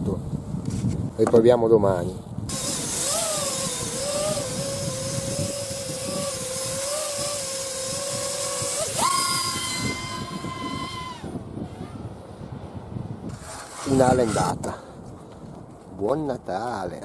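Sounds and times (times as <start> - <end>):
wind hiss on microphone: 0.0 - 17.0
quadcopter motors whining: 2.5 - 12.2, 13.3 - 14.7.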